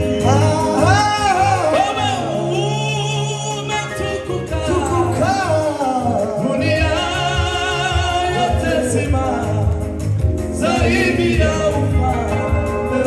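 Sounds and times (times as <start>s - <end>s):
band backing with low beat: 0.0s - 13.0s
praise team singing: 0.0s - 13.0s.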